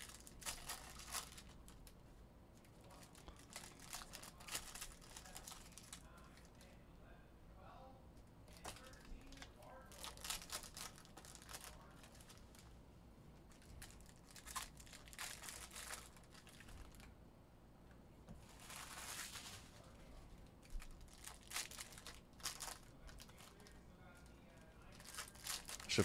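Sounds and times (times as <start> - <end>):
foil wrappers tearing and crinkling: 0.0 - 1.9, 3.0 - 6.0, 8.6 - 12.4, 13.8 - 17.0, 18.6 - 19.8, 20.8 - 23.8, 24.9 - 26.0.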